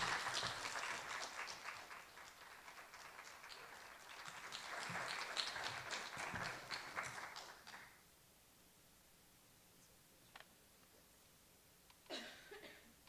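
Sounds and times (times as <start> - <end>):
faint audience applause: 0.0 - 8.0.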